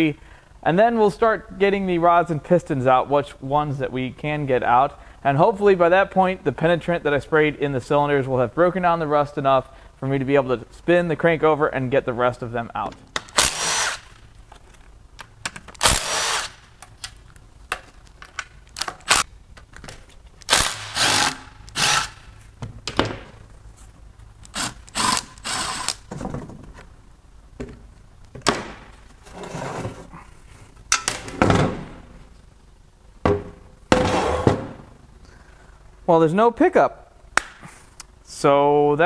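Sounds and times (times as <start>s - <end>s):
cordless power tool whirring: 20.5s - 22.2s.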